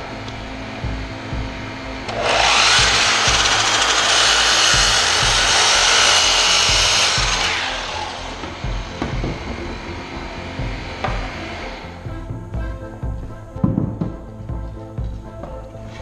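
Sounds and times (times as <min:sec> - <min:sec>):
miter saw whining and cutting wood: 0:00.0 - 0:12.2.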